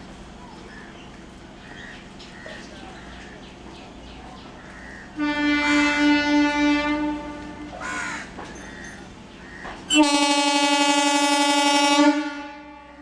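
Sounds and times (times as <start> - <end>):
crow cawing: 4.6 - 5.2, 7.8 - 9.8
train horn blasts: 5.1 - 8.2, 9.9 - 13.0.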